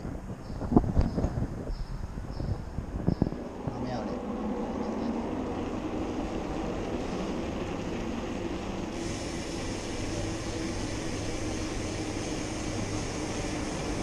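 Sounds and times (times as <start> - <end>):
wind on camera: 0.0 - 9.3
bicycle tyre rumble: 0.0 - 14.0
steady low hum: 0.0 - 14.0
higher hiss: 8.8 - 14.0.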